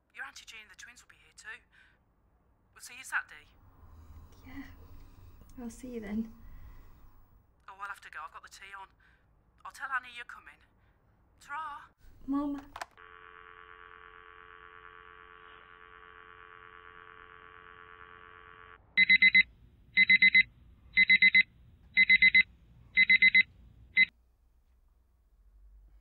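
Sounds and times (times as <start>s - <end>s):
telephone dial tone: 12.6s - 19.4s
digital alarm clock beeping: 19.0s - 24.1s.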